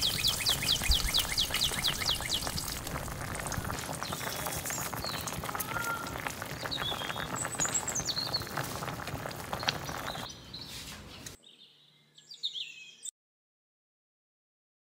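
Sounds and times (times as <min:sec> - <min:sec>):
soup bubbling and popping: 0:00.0 - 0:10.3.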